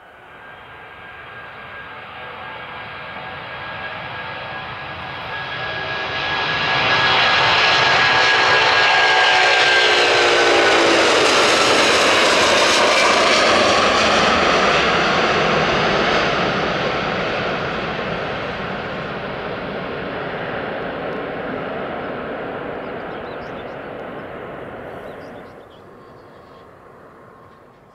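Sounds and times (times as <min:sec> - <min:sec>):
jet airliner taking off: 0:00.0 - 0:27.9
jet engine whine: 0:00.0 - 0:27.9.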